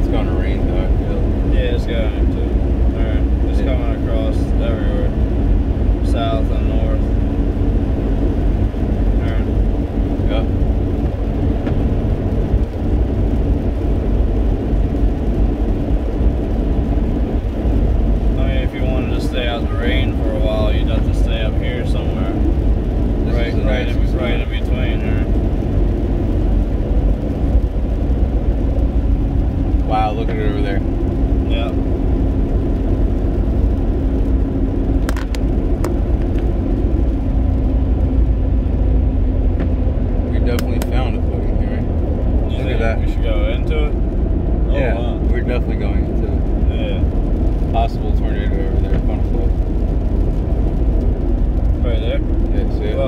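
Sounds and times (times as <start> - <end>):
car engine: 0.0 - 53.0
tyres on wet road: 0.0 - 53.0.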